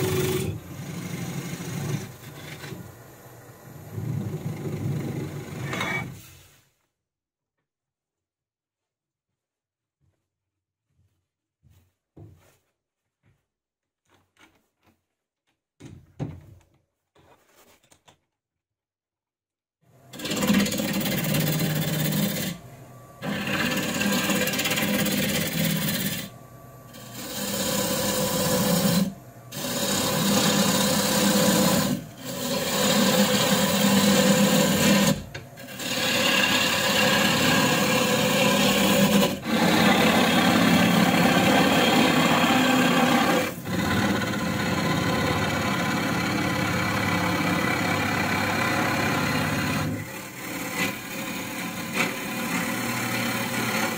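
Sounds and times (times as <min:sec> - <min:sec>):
gouge cutting wood on lathe: 0:00.0 - 0:03.0, 0:03.9 - 0:06.2, 0:20.1 - 0:53.9.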